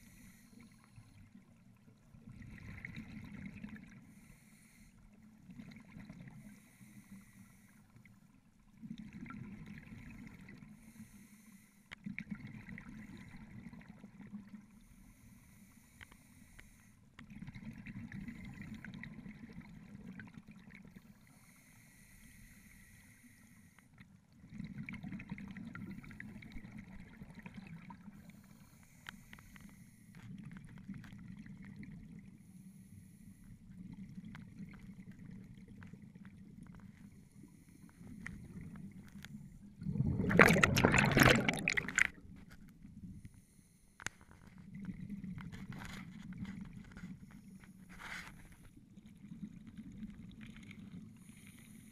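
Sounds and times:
exhaled bubbles underwater: 0.0s - 4.2s, 5.2s - 6.6s, 8.1s - 10.8s, 12.0s - 14.8s, 17.2s - 21.2s, 23.9s - 28.5s, 30.2s - 32.4s, 33.5s - 43.2s, 44.5s - 47.3s, 48.7s - 51.9s
regulator breathing hiss: 10.8s - 11.8s, 21.3s - 23.8s.

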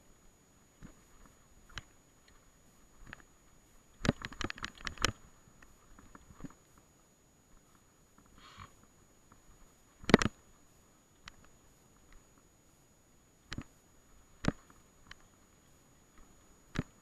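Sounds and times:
sharp clicks: 3.9s - 6.6s, 10.0s - 10.4s, 13.5s - 13.8s.

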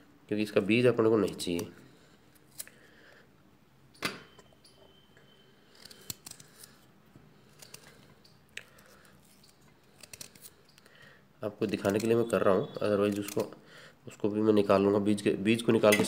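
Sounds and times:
knife crunching into fruit: 13.0s - 13.5s.

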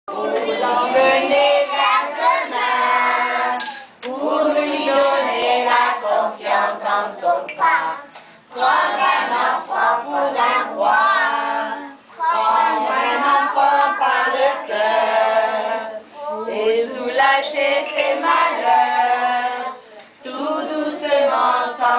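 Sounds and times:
children singing together: 0.1s - 21.9s.

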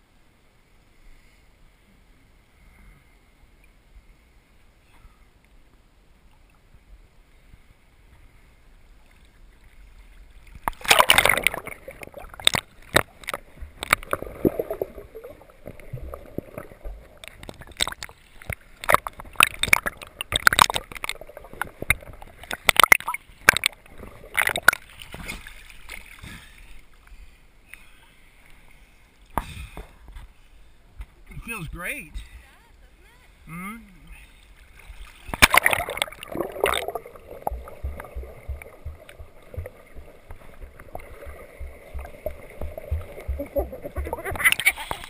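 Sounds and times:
water splashing around camera: 6.2s - 27.3s, 34.0s - 45.0s.

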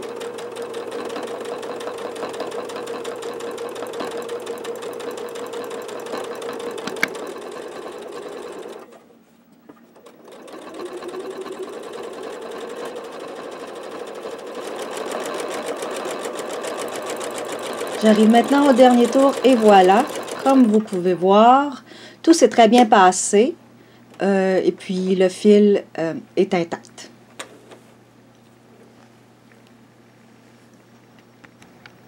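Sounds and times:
sewing machine stitching: 0.0s - 9.1s, 9.8s - 21.2s.

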